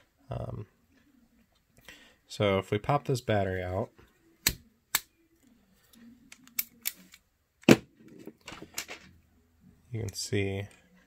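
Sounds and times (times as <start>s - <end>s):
lightsaber handling clicks: 6.3s - 7.2s.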